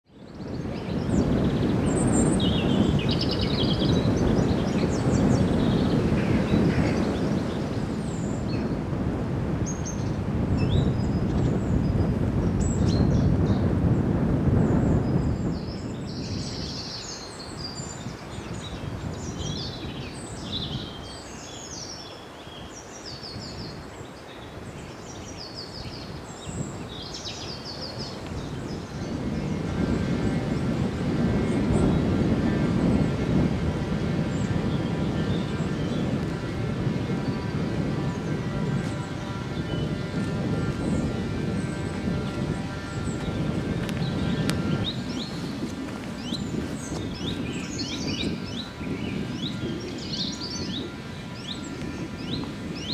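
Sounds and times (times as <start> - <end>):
songbirds singing: 0.0 - 8.8, 9.6 - 52.9
wind rumble on microphone: 0.0 - 52.9
low background rush: 0.6 - 52.9.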